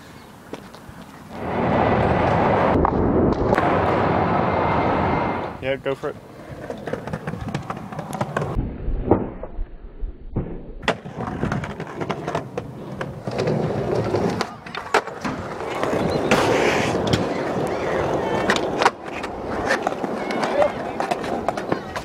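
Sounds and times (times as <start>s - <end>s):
skateboard wheels rolling on concrete: 0.0s - 8.6s, 10.8s - 22.0s
skateboard clacking on ground: 6.5s - 8.6s, 10.8s - 22.0s.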